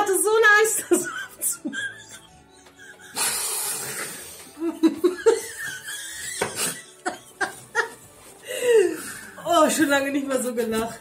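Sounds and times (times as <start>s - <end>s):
woman and man laughing: 0.8s - 8.1s.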